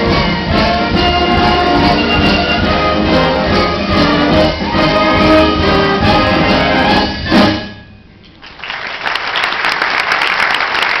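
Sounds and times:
wind band playing: 0.0 - 8.2
audience applause: 8.4 - 11.0.

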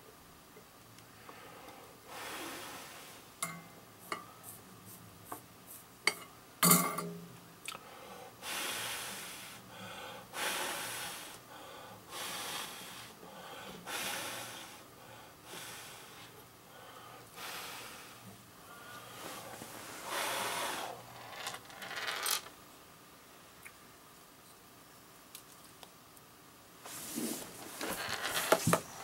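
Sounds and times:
person breathing: 1.1 - 3.3, 7.8 - 21.0.

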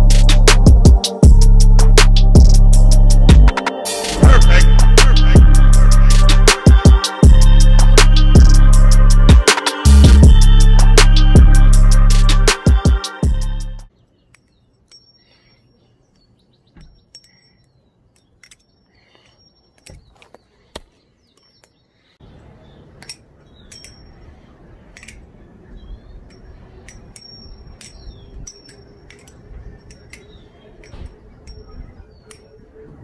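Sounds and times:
faint bird chirps: 13.9 - 33.0
butterfly knife metallic clicks: 17.0 - 18.9, 23.0 - 25.4, 26.1 - 32.7
steady background noise: 22.2 - 33.0.

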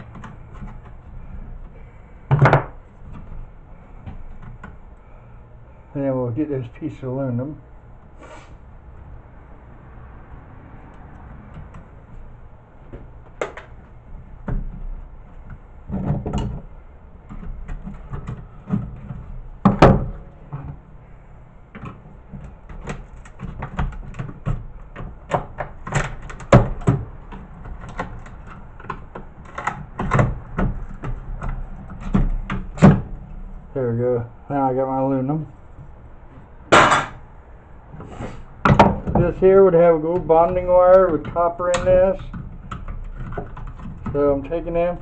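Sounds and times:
metal knocks: 36.7 - 37.2.

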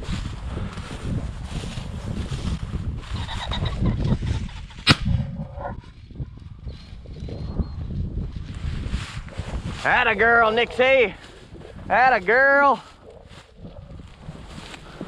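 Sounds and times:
wind rumble on microphone: 0.0 - 15.0
shotgun shot: 4.8 - 5.2.

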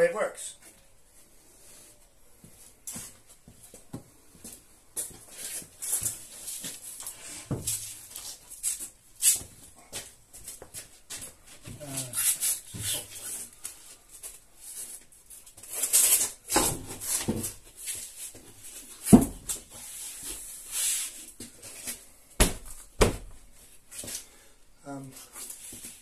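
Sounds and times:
plasterboard scuffing against wall: 10.5 - 13.6, 16.0 - 23.4.

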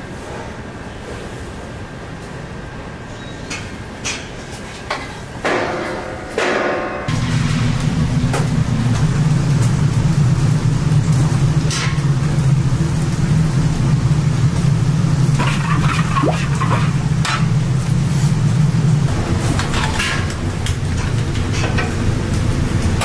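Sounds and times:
gas burner roaring: 7.1 - 23.0.

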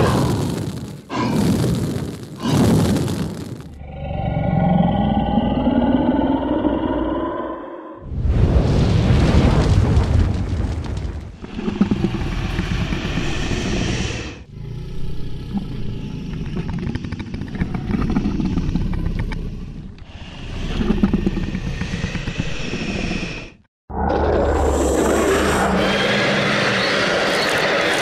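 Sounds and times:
dragon creature growling: 3.8 - 8.1.

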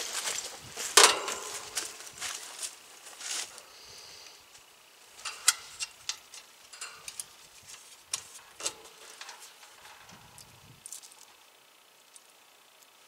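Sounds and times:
sharp metallic clicks: 5.2 - 11.4.

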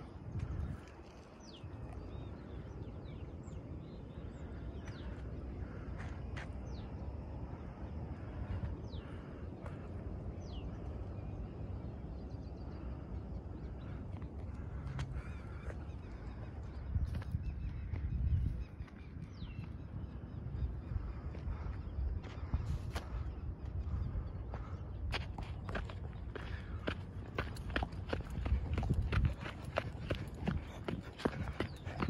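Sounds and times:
birds calling: 0.0 - 32.0
wind rumbling on microphone: 0.0 - 32.0
footsteps on dirt trail: 4.8 - 7.0, 13.8 - 19.8, 21.1 - 32.0.

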